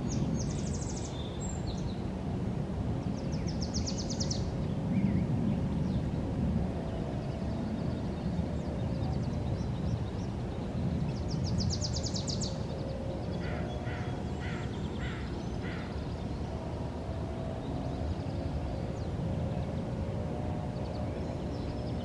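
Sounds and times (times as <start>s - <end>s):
low outdoor rumble: 0.0s - 22.0s
birds calling: 11.1s - 16.6s.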